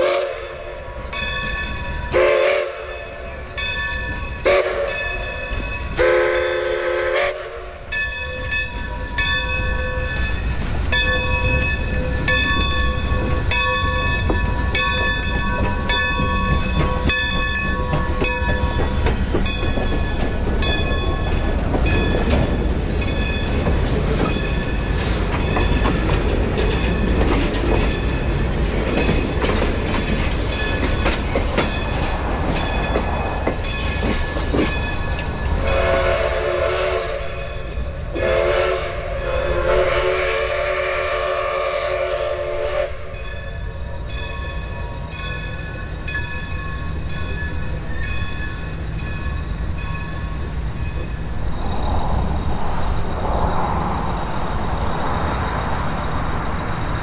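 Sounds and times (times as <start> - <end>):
steam whistle blasts: 0.0 - 0.6, 2.1 - 3.2, 4.4 - 5.2, 6.0 - 8.0, 35.6 - 37.5, 38.1 - 43.2
train rumble and clatter: 0.0 - 57.0
locomotive bell ringing: 0.3 - 36.4, 37.2 - 38.2, 42.9 - 51.6.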